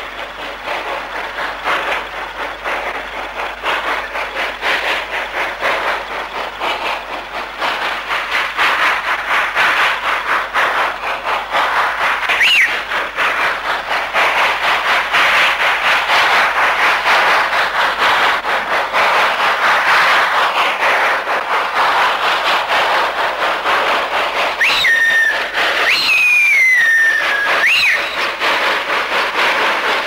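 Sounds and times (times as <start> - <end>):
steam locomotive exhaust beating: 0.0 - 30.0
high squeal: 24.6 - 28.2.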